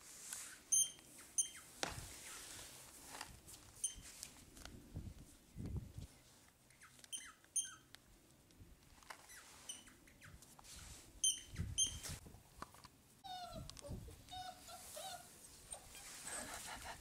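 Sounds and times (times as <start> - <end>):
puppies squeaking: 0.7 - 2.4, 3.8 - 4.0, 6.7 - 7.9, 9.3 - 10.4, 11.2 - 12.2, 13.3 - 16.8
puppy whimpering and whining: 13.2 - 17.0.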